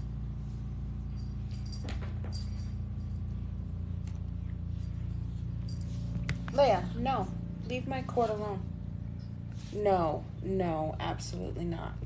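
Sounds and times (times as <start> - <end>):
low background hum: 0.0 - 12.0.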